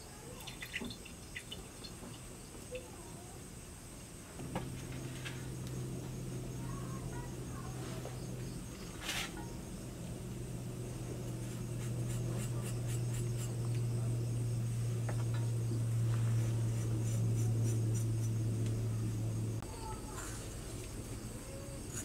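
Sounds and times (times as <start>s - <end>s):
steady low hum: 0.0s - 22.0s
spice scraped from clay dishes: 11.4s - 13.8s.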